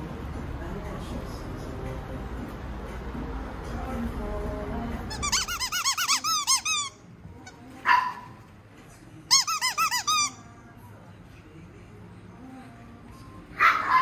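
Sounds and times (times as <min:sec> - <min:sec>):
dog yelp: 0:07.9 - 0:08.3, 0:13.6 - 0:14.0
small dog yipping: 0:13.6 - 0:14.0.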